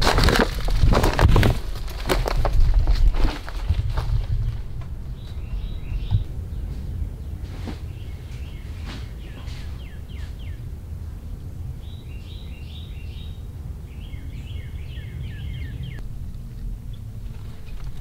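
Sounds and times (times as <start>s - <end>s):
low rumble: 0.0s - 18.0s
bird chirping: 4.2s - 18.0s.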